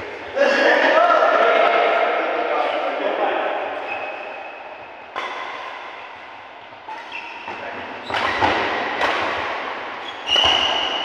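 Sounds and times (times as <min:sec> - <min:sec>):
badminton racket hitting shuttlecock: 0:08.0 - 0:11.0.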